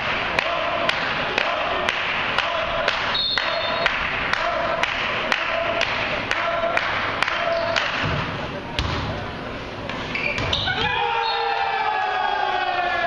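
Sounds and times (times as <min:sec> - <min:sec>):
referee's whistle blast: 0:03.1 - 0:03.8.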